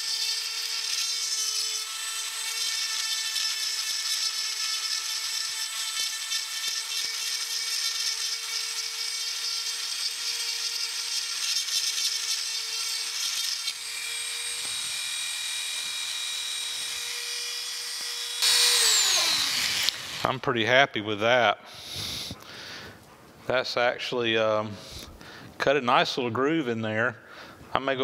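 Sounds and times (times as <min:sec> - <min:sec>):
gritty grinding hiss: 0:17.9 - 0:25.8
high motor whine: 0:18.0 - 0:20.2.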